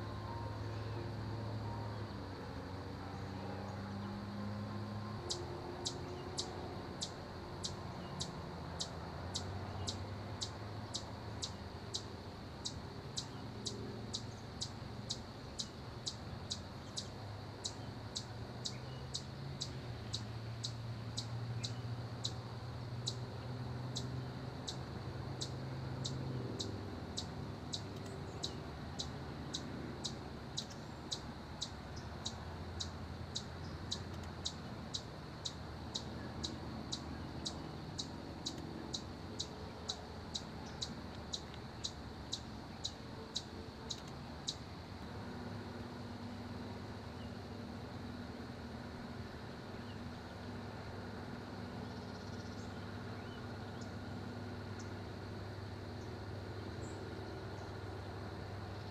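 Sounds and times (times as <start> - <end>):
low steady hum: 0.0 - 23.5.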